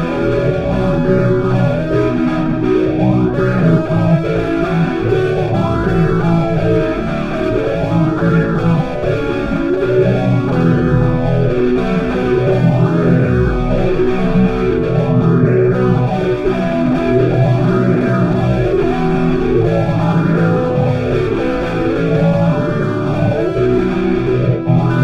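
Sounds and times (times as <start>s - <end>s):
instrumental rock music: 0.0s - 25.0s
low notes sliding down: 4.3s - 22.2s.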